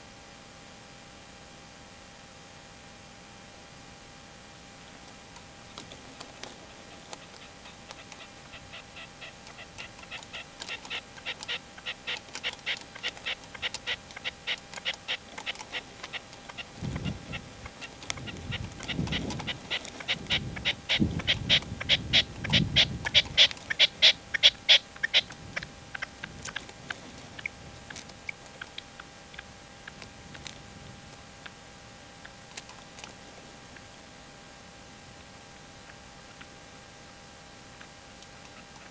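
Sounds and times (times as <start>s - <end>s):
partridge calling: 5.6s - 30.6s.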